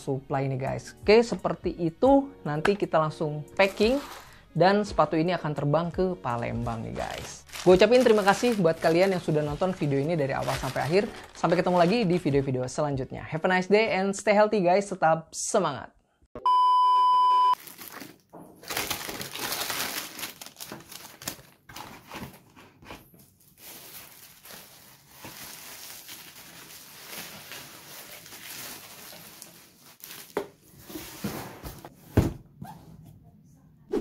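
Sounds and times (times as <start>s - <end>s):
bubble wrap crinkling: 3.6s - 4.4s, 6.9s - 12.8s, 17.6s - 31.4s
electronic test-tone beep: 16.4s - 17.6s.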